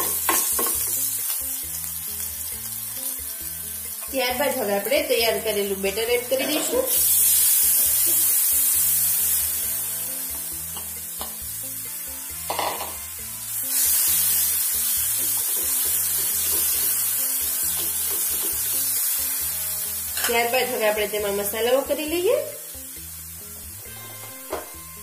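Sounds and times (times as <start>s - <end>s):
hot oil sizzling loudly: 0.0s - 25.0s.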